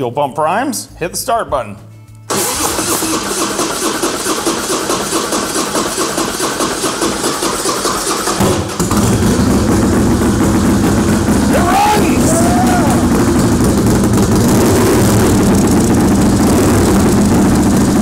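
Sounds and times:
motorcycle engine idling: 0:07.9 - 0:18.0.

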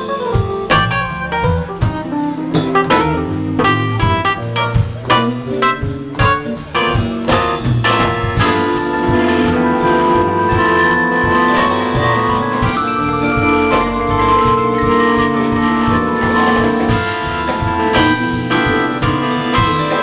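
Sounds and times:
electronic keyboard chords: 0:00.0 - 0:20.0.

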